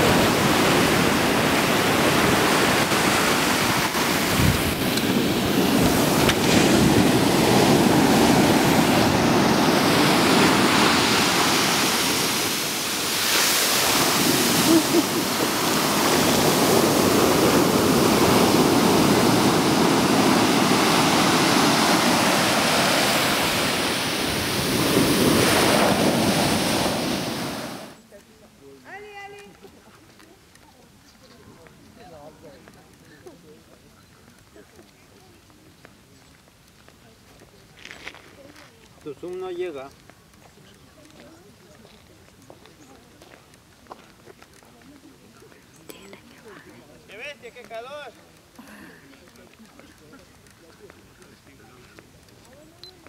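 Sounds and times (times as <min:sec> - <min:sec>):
wind buffeting microphone: 0:00.0 - 0:28.0.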